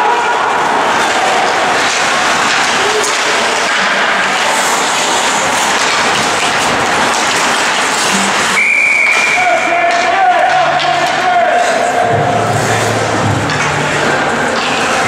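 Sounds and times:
ice rink rushing noise: 0.0s - 15.0s.

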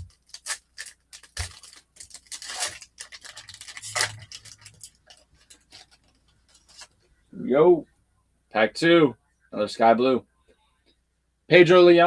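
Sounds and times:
foil wrapper tearing and crinkling: 0.0s - 6.9s.

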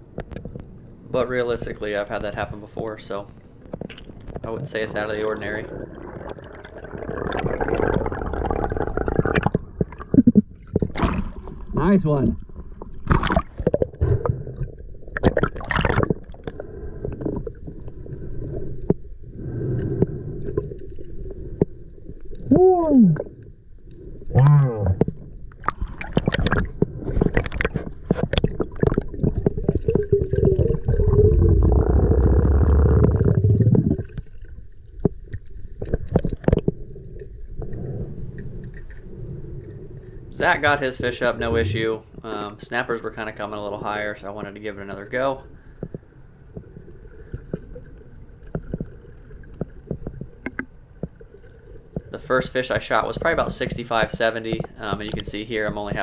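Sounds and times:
underwater knocks and clicks: 0.0s - 0.7s, 3.6s - 5.1s, 6.0s - 19.1s, 23.1s - 39.0s, 45.8s - 56.0s
muffled underwater movement: 0.0s - 56.0s.

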